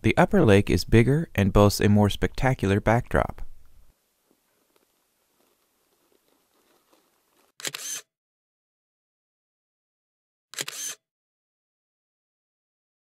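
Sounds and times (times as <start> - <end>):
camera shutter clicks: 7.6 - 8.1, 10.6 - 11.0.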